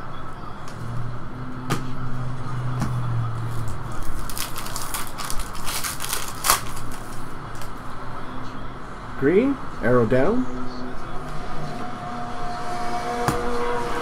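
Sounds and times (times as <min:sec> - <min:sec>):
foil wrapper crinkling and tearing: 0:03.6 - 0:07.7.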